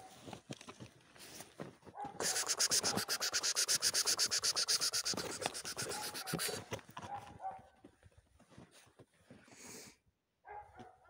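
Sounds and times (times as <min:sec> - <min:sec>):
dog panting: 0:02.2 - 0:06.8.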